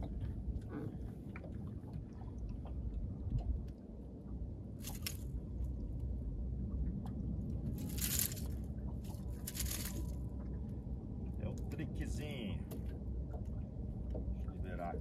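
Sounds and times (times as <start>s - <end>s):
low rumble: 0.0s - 15.0s
fish rustling and scraping on deck: 4.8s - 5.3s, 7.8s - 10.2s.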